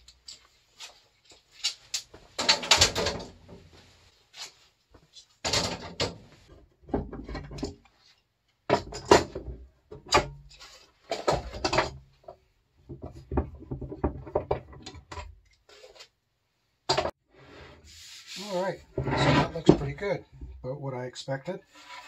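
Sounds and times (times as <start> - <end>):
metal clamps clanking on wood: 1.7 - 3.6, 6.9 - 7.8.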